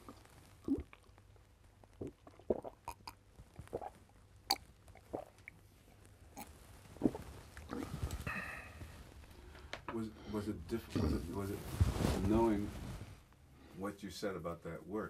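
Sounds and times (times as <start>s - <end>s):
man sipping and swallowing water: 0.0s - 1.2s, 1.9s - 5.6s, 6.4s - 8.9s.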